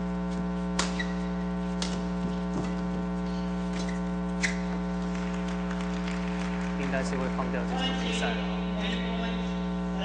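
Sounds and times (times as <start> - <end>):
electrical mains hum: 0.0 - 10.0
badminton rackets hitting shuttlecock: 0.8 - 2.1.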